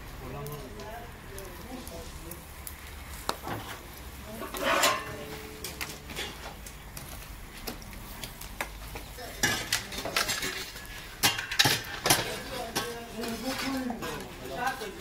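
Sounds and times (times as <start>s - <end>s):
metal skewers clinking: 4.4s - 6.6s, 9.3s - 15.0s.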